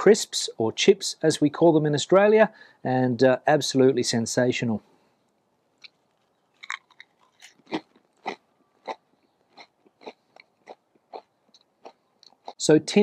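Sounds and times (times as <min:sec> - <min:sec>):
crisp crunching while chewing: 0:05.8 - 0:12.6.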